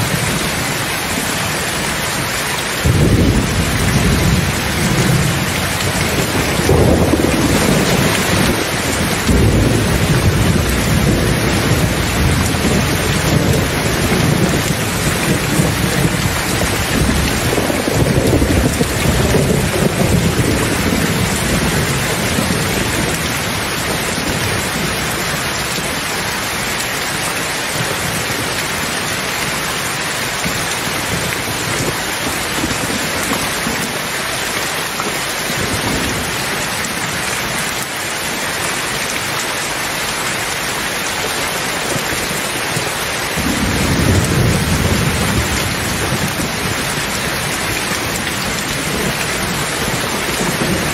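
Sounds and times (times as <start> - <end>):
thunder rumbling: 0.0 - 26.7, 41.8 - 50.9
heavy rain falling: 0.0 - 50.9.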